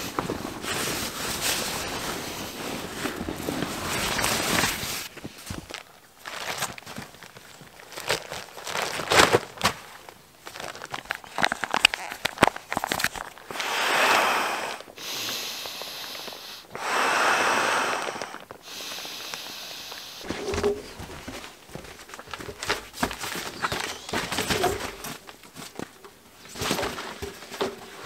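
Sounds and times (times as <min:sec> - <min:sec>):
nylon fabric rustling: 0:00.0 - 0:13.4, 0:20.2 - 0:28.0
breaths blown into valve: 0:13.5 - 0:20.5.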